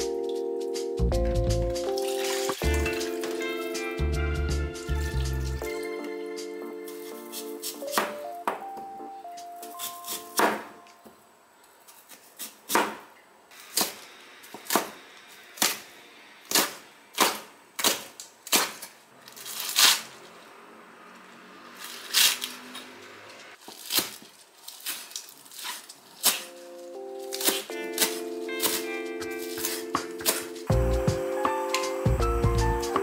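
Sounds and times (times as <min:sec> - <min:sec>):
knife chopping on cutting board: 0:07.3 - 0:08.6, 0:09.8 - 0:10.7, 0:12.4 - 0:13.1, 0:27.4 - 0:28.9.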